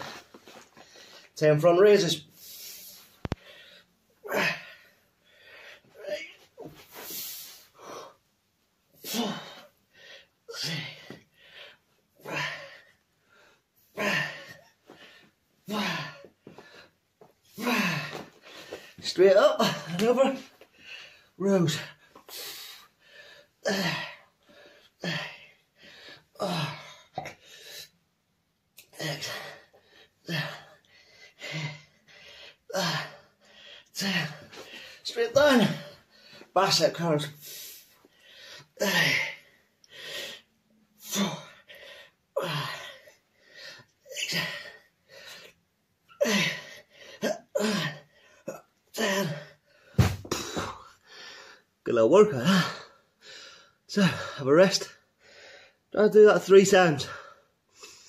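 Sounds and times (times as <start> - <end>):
man breathing: 2.2 - 8.3, 8.9 - 19.0, 20.6 - 28.0, 28.9 - 35.1, 37.3 - 47.2, 49.5 - 51.8, 52.7 - 54.4, 55.0 - 55.9, 57.1 - 58.0
man grunting: 4.3 - 4.7, 6.0 - 6.4, 9.1 - 9.6, 10.5 - 11.2, 14.0 - 14.6, 15.7 - 16.3, 17.6 - 18.3, 19.2 - 20.5, 23.6 - 24.2, 26.4 - 27.0, 32.7 - 33.2, 34.0 - 34.4, 35.1 - 36.0, 38.8 - 39.4, 41.0 - 41.5, 47.2 - 50.8
man grunting with effort: 14.0 - 14.6, 15.7 - 16.3, 17.6 - 18.3, 23.6 - 24.2, 26.4 - 27.0, 47.2 - 48.1.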